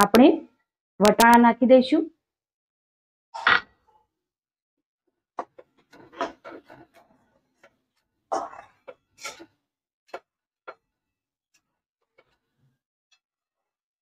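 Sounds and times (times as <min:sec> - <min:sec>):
metal spatula scraping a pan: 0:09.2 - 0:09.5.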